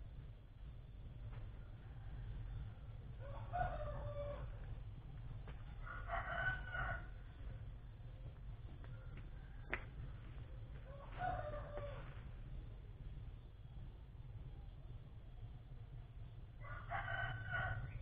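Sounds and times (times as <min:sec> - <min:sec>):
steady low rumble: 0:00.0 - 0:18.0
rooster crowing: 0:03.2 - 0:04.7, 0:05.8 - 0:07.2, 0:09.3 - 0:12.2, 0:16.6 - 0:18.0.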